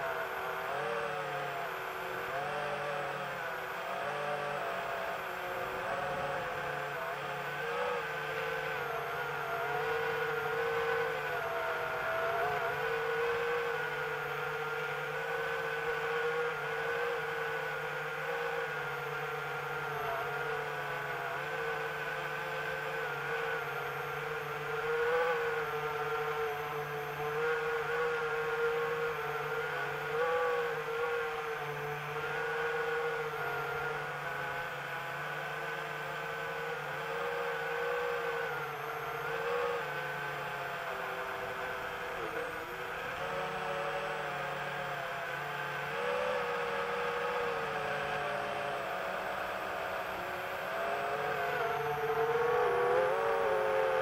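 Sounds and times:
drone propellers whirring: 0.0 - 54.0.

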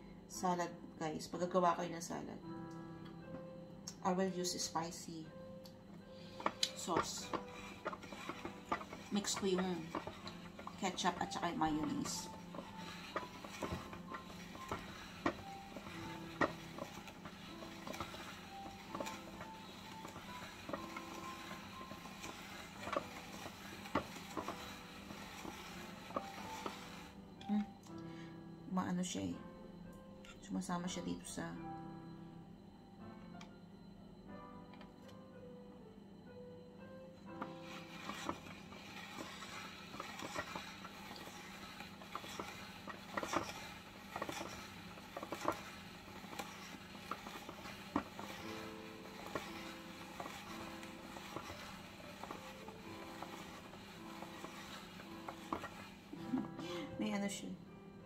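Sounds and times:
spiralizer blade and crank clicking: 6.2 - 27.1, 37.5 - 56.0.

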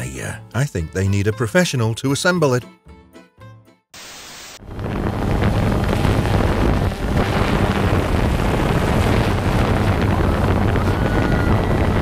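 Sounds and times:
drone propeller wash and wind: 4.6 - 12.0
low hum of motors: 4.6 - 12.0.

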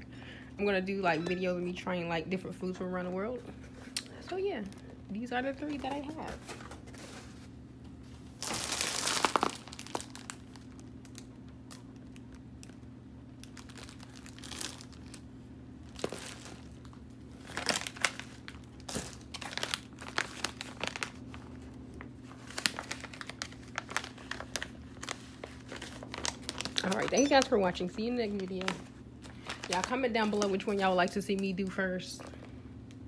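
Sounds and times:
plastic bag crinkling: 8.3 - 32.4.

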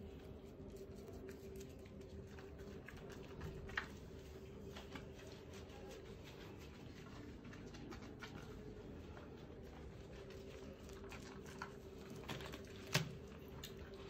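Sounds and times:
wet rubbing of soapy fur: 0.0 - 14.0.

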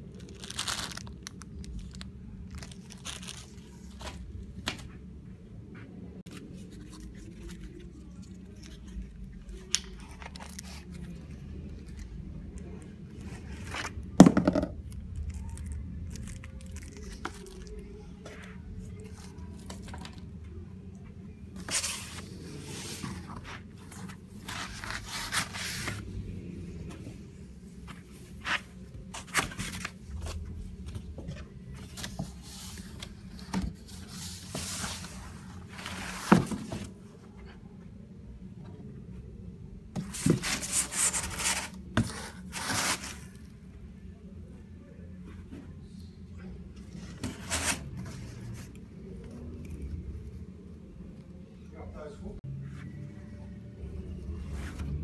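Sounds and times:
plastic wrapping rustling: 0.0 - 4.2.

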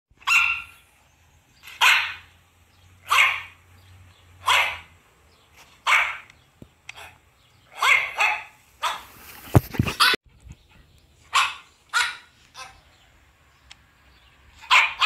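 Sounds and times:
dog barking: 0.2 - 0.8, 1.7 - 2.3, 3.0 - 3.6, 4.4 - 4.9, 5.8 - 6.3, 7.0 - 9.2, 9.9 - 10.2, 11.3 - 12.9, 14.6 - 15.0.

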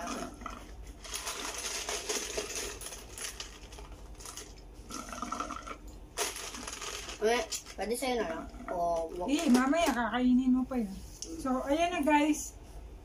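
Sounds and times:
slurping through a straw: 4.9 - 5.8.

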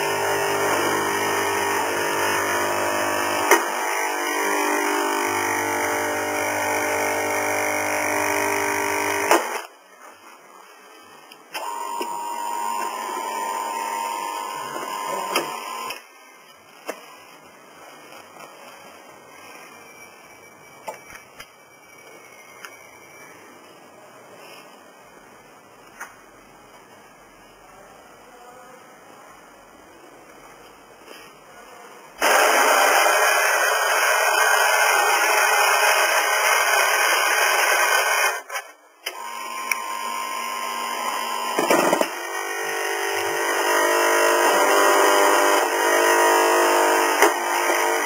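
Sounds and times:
coffee grinder whirring: 0.0 - 9.3, 32.2 - 38.5, 39.1 - 48.0
espresso machine motor whine: 0.0 - 9.3, 11.6 - 16.0, 39.1 - 48.0.

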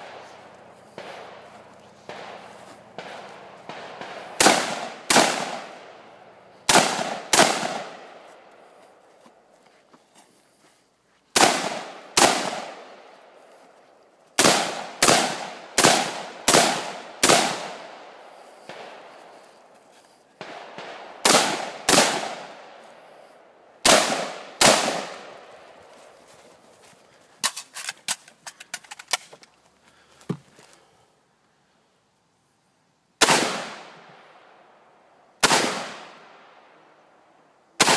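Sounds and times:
rifle shots with echo: 0.0 - 6.1, 6.7 - 8.3, 11.4 - 13.4, 14.4 - 19.3, 20.4 - 22.8, 23.8 - 25.8, 33.2 - 34.6, 35.4 - 36.7.

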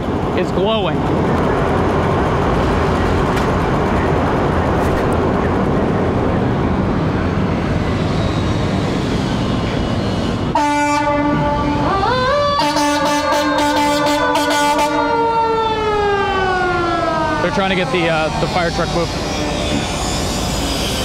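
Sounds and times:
rising siren: 5.4 - 21.0
fire engine air horn: 10.5 - 20.2.

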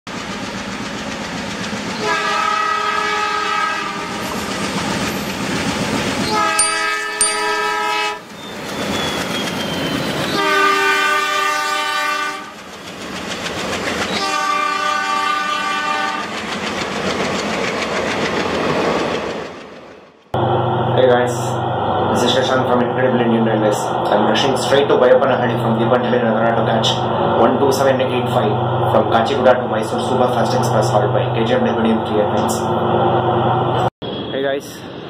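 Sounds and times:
train running on rails: 0.1 - 35.0
locomotive horn blasts: 2.0 - 4.3, 6.2 - 8.3, 10.3 - 12.6, 14.2 - 16.3.

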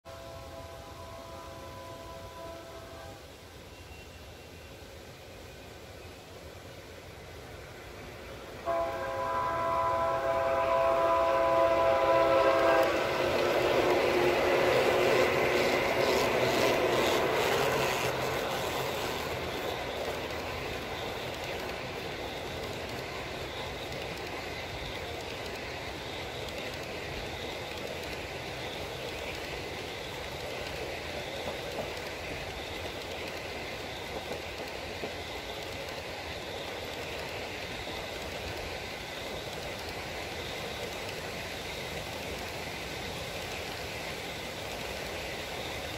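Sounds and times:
model train diesel horn: 0.0 - 4.2, 8.6 - 18.2
train cars rolling: 0.2 - 45.9
wheels clicking over rail joints: 11.5 - 45.9.

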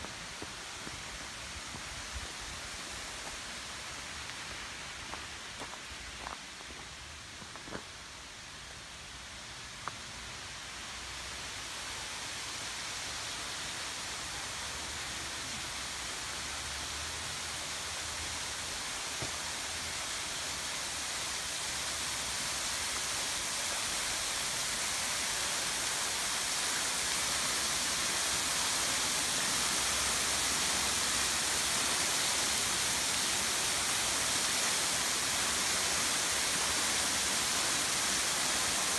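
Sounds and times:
waterfall splashing into pool: 17.4 - 38.9.

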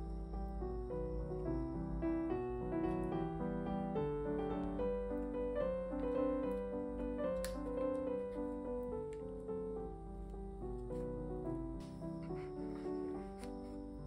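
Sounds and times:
gentle piano music: 0.0 - 14.0.

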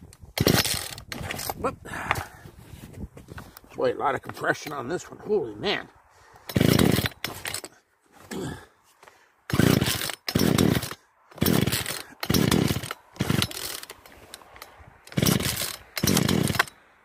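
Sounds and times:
chainsaw pull-starting: 0.3 - 1.6, 6.4 - 8.6, 9.5 - 16.9.

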